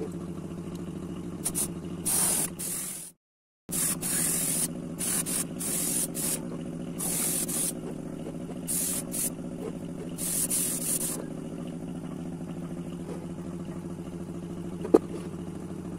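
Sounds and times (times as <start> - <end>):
steady motor hum: 0.0 - 15.9
paint spraying hisses: 1.4 - 6.4, 7.0 - 7.8, 8.7 - 9.4, 10.2 - 11.2.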